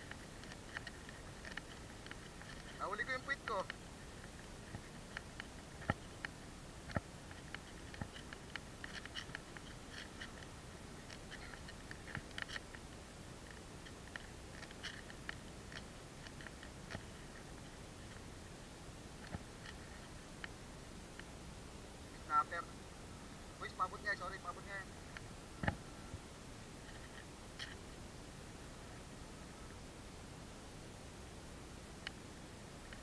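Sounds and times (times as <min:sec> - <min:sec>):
handling clicks and rustling: 0:00.0 - 0:18.3.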